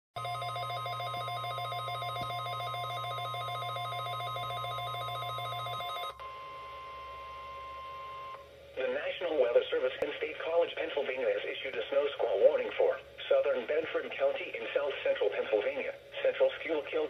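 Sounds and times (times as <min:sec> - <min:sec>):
warbling alert alarm: 0:00.2 - 0:06.2
steady alarm tone: 0:00.2 - 0:08.4.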